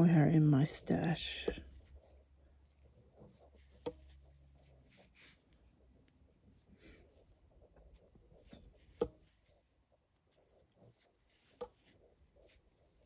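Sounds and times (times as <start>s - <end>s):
yarn rubbing and rustling: 0.0s - 13.0s
knitting needles clicking: 1.3s - 2.2s, 3.2s - 4.7s, 7.7s - 9.7s, 10.3s - 13.0s.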